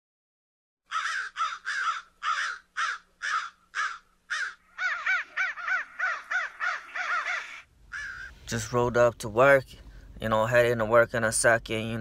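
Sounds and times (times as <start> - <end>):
crows cawing: 0.8 - 8.4.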